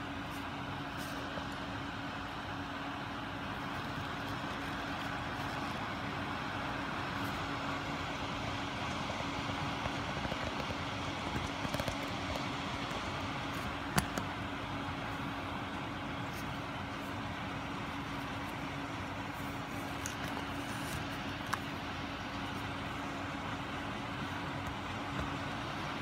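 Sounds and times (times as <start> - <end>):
steady mechanical hum: 0.0 - 26.0.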